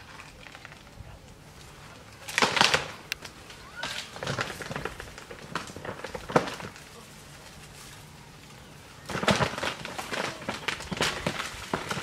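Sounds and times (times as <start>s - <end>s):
tree branches cracking: 0.0s - 12.0s.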